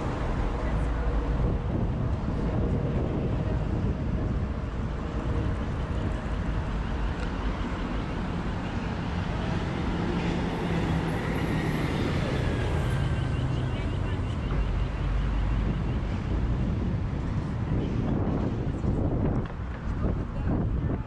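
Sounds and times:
truck engine drone: 0.0s - 19.4s
cars and vans driving past: 0.0s - 20.9s.

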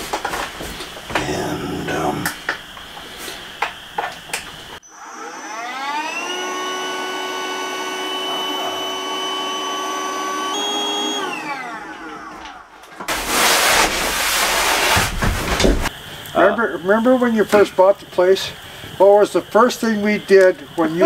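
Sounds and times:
inflator motor whine: 4.7s - 12.8s.

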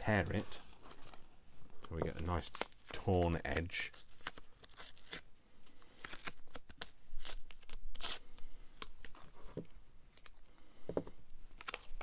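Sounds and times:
paper tearing: 2.4s - 5.3s, 5.9s - 8.3s.

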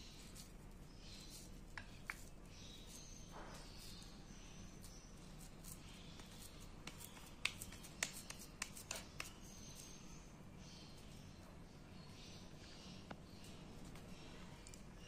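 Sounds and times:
hands rolling dough: 0.0s - 10.2s.

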